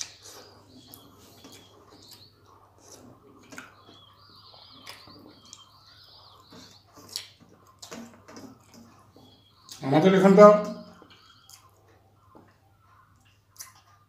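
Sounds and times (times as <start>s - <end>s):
chewing: 0.0s - 5.7s, 6.4s - 9.8s, 11.1s - 14.0s
birds chirping faintly: 0.0s - 14.0s.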